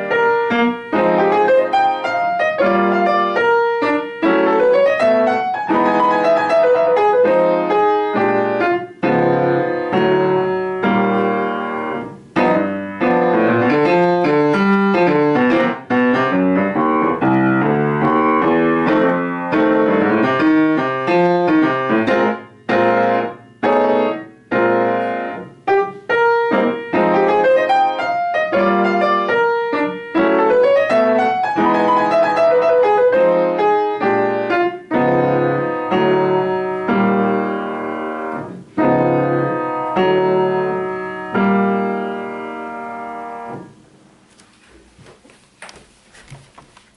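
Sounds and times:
upright piano playing: 0.0s - 44.3s.

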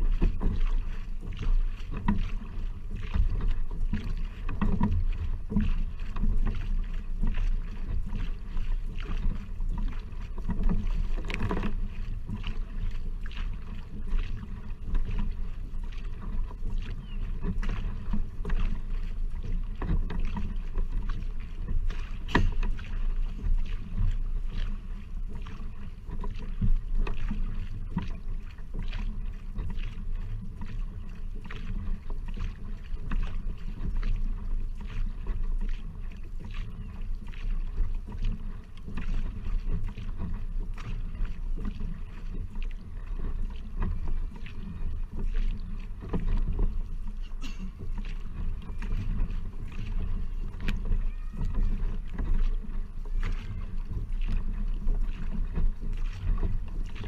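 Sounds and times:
paddle strokes splashing: 0.0s - 57.0s
water rumbling along hull: 0.0s - 57.0s.

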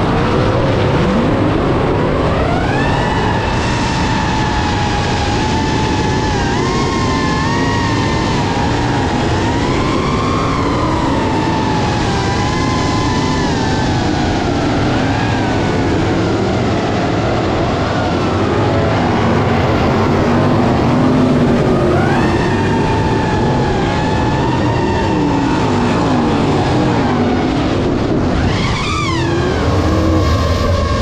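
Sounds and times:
drone motors whining: 0.0s - 31.0s
race car engines: 0.0s - 31.0s.

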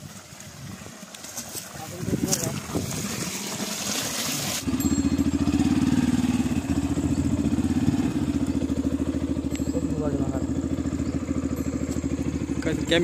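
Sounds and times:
motorcycle engine idling: 0.7s - 13.0s.

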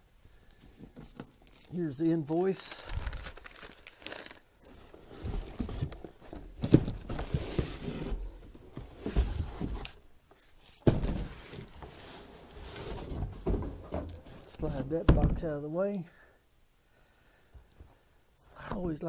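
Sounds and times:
cardboard rustling and scraping: 4.6s - 10.0s, 10.6s - 14.8s.

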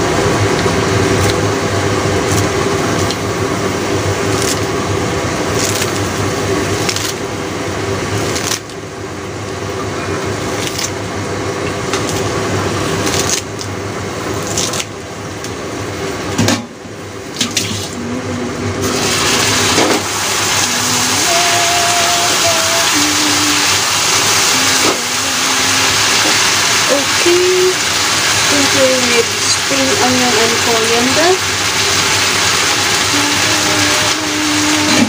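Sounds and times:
low hum: 0.0s - 35.0s
food sizzling in a pan: 18.8s - 35.0s.

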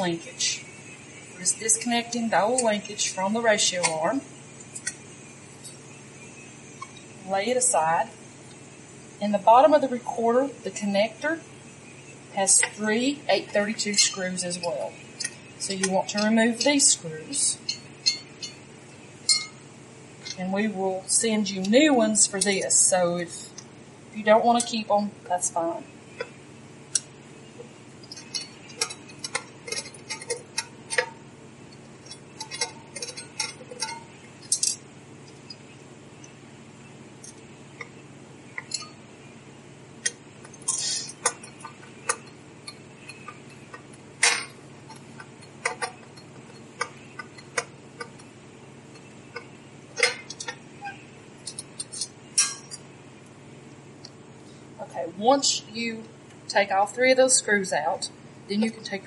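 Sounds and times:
screwdriver clicks and metal clinks: 32.0s - 34.8s, 51.4s - 52.8s.

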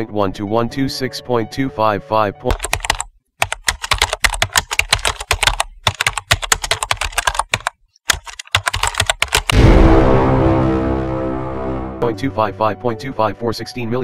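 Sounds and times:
typing on keyboard: 2.5s - 9.6s
loud hit: 9.5s - 12.5s
sustained music: 9.5s - 13.4s.

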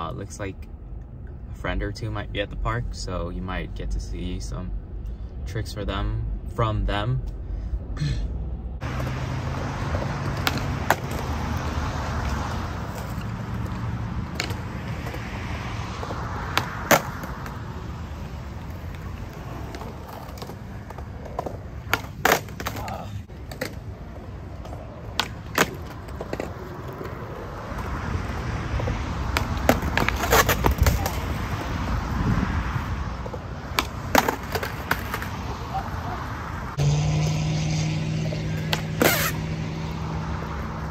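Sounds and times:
skateboard wheels rolling on concrete: 8.7s - 40.9s
skateboard clacking on ground: 9.8s - 15.2s, 16.1s - 17.6s, 18.6s - 28.0s, 29.2s - 31.8s, 33.2s - 35.9s, 38.2s - 39.4s.

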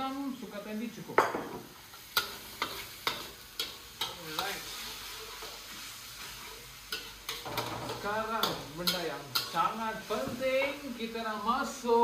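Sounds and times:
paste sizzling in hot oil: 0.0s - 12.0s
spatula scraping a wok: 1.8s - 11.7s.

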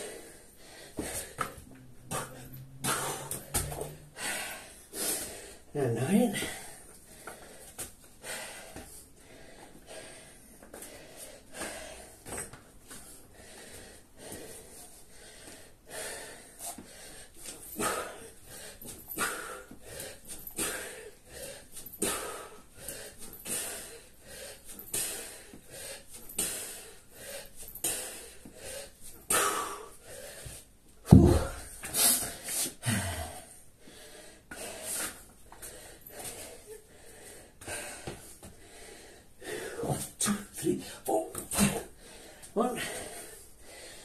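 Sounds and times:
man panting: 0.0s - 44.0s
kettlebell thud: 2.1s - 4.0s, 31.1s - 31.7s
man exhaling forcefully: 2.1s - 4.6s.

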